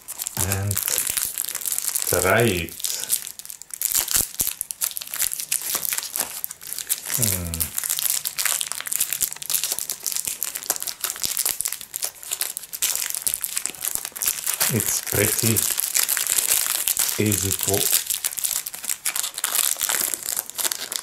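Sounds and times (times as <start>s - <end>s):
plastic wrapper crinkling: 0.0s - 21.0s
short falling vocal sound: 7.2s - 7.7s.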